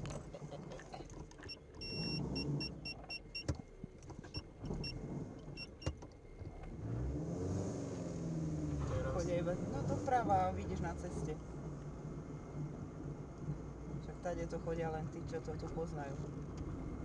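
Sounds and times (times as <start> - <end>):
engine and road rumble: 0.0 - 17.0
parking sensor beeping: 1.4 - 6.5.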